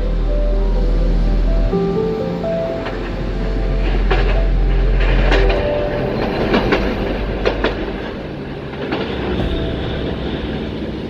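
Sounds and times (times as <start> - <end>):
tram rumbling past: 0.0 - 11.0
wheels clacking over rail joints: 2.3 - 11.0.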